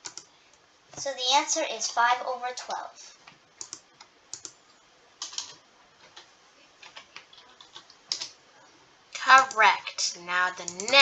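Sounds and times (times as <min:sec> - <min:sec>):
computer keyboard typing: 0:00.0 - 0:00.3, 0:03.6 - 0:04.6, 0:05.2 - 0:08.4, 0:10.6 - 0:11.0.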